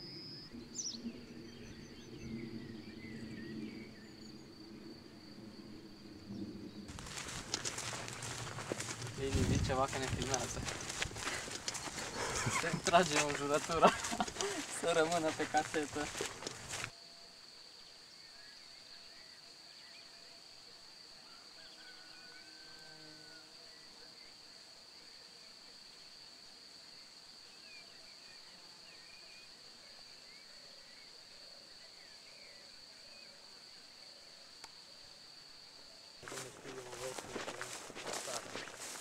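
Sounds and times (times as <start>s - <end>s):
faint chirps: 6.2s - 16.9s.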